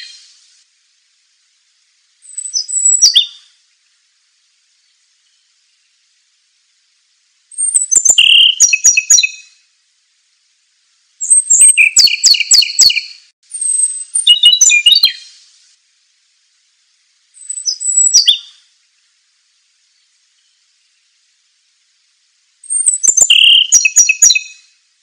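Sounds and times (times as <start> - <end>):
bird singing trills: 2.2 - 3.5, 7.6 - 9.6, 11.2 - 15.4, 17.4 - 18.6, 22.7 - 24.7.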